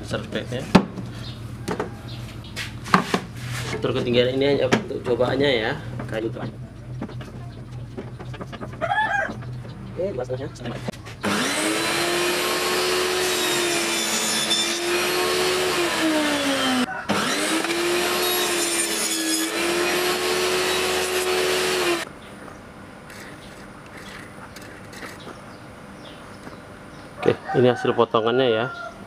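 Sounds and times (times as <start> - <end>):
table saw cutting wood: 11.2 - 22.1.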